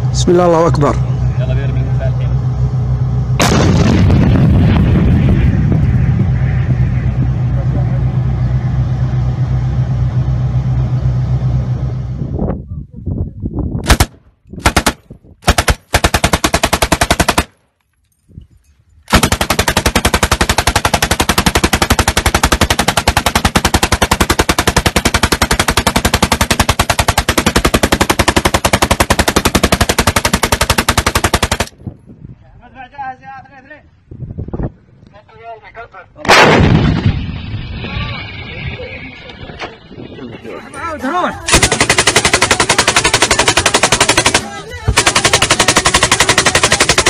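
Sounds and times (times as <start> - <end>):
low vehicle rumble: 0.0 - 14.5, 36.3 - 45.3
automatic gunfire bursts: 13.9 - 17.6, 19.1 - 31.7, 41.5 - 47.0.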